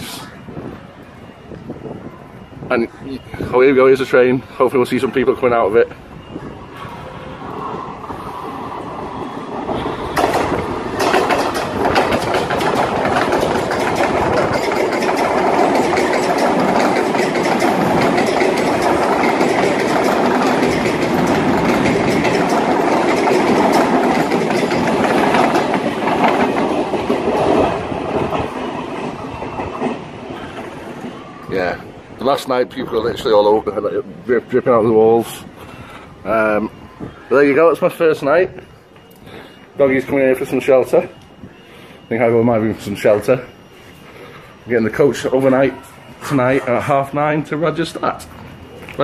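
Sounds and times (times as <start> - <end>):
train wheels clattering on track: 3.4 - 36.8.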